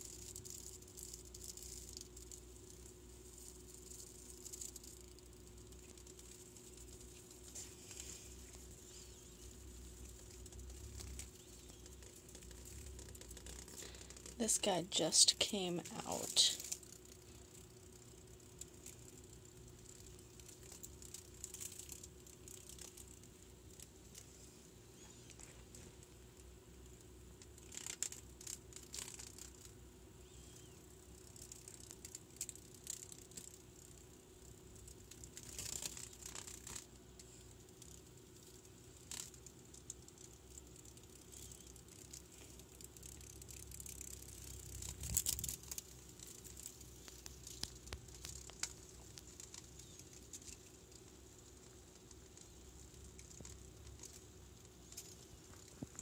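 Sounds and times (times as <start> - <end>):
crackle: 0.0 - 56.0
low steady hum: 0.0 - 56.0
rustling and crinkling handling noise: 3.4 - 17.4, 35.1 - 56.0.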